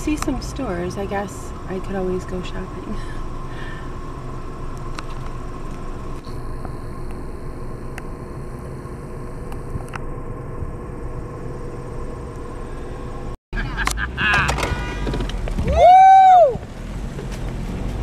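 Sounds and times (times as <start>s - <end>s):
faint steady whine: 0.0s - 13.4s
car rumble from inside cabin: 0.0s - 18.0s.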